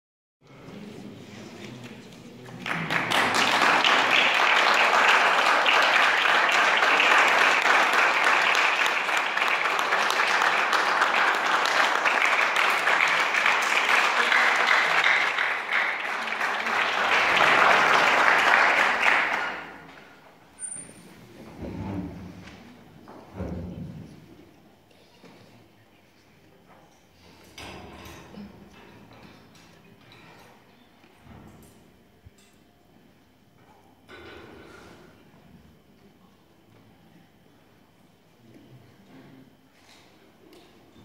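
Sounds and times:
audience applauding: 2.4s - 20.0s.

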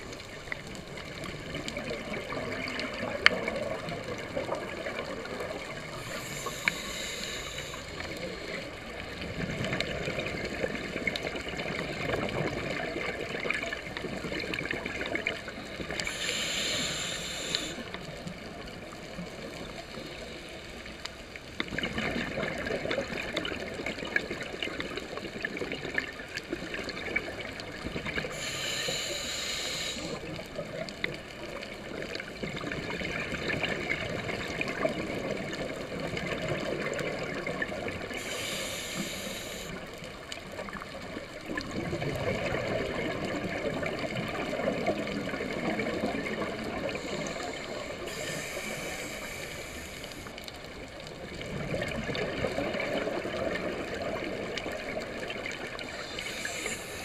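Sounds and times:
bubbling exhaust underwater: 0.0s - 57.0s
faint crackle: 0.0s - 57.0s
scuba regulator inhalation hiss: 5.7s - 8.7s, 15.9s - 18.0s, 28.2s - 30.4s, 38.1s - 40.0s, 46.8s - 50.4s, 55.9s - 57.0s.

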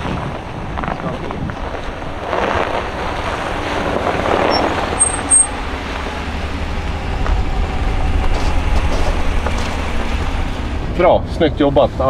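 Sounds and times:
truck engine rumble: 0.0s - 12.0s
tyres on snowy road: 0.0s - 12.0s.

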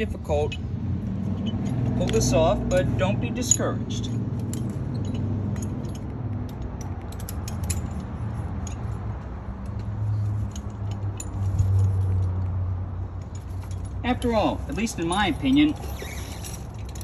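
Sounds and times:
chain links clinking: 0.2s - 17.0s.

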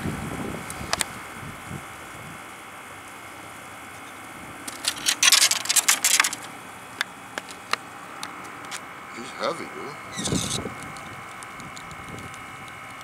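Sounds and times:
rasping clicks: 4.7s - 6.5s, 10.1s - 13.0s
rough scraping and rubbing: 4.7s - 6.5s, 10.1s - 10.7s
sharp clicks: 10.2s - 13.0s.

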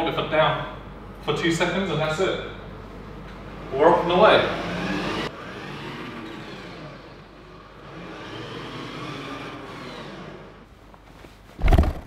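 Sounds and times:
electric motors whining: 3.7s - 10.7s
loud thump: 11.6s - 12.0s.

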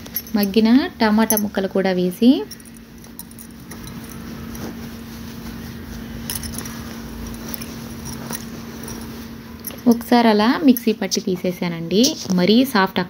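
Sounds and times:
spoon clinking in steel jar: 0.0s - 1.6s
steady low hum: 0.0s - 12.5s.

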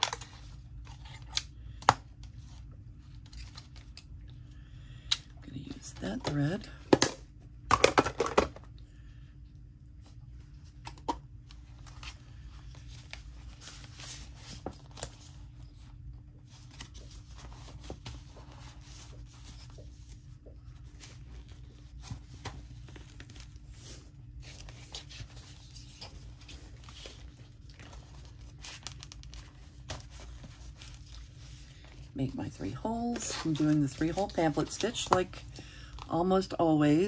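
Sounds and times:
steady low hum: 0.0s - 37.0s
paper rustling: 11.6s - 35.5s.

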